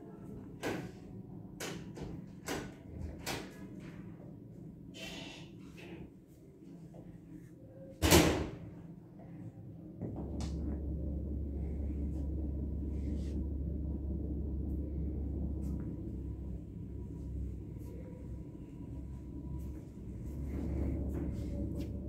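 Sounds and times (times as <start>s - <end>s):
low rumble: 8.8s - 22.0s.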